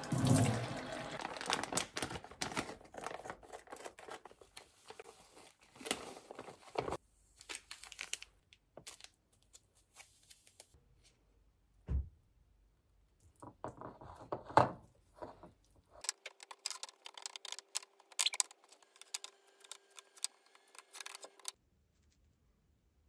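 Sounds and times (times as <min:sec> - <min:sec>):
rustling and clicking: 0:15.2 - 0:22.3
small clicks and rattles: 0:16.0 - 0:21.6.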